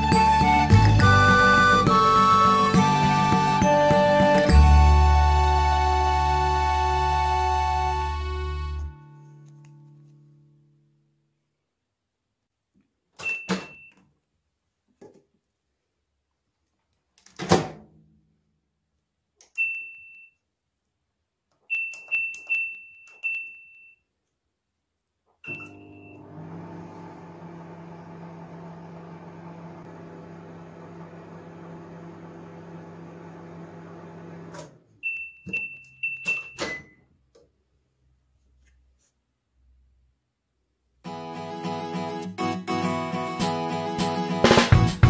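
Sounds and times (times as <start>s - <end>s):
keypad button beeps: 13.2s - 14.0s, 19.5s - 20.4s, 25.4s - 26.2s, 35.0s - 37.0s
microwave oven humming: 25.5s - 34.5s
beeps and clicks: 35.0s - 37.0s.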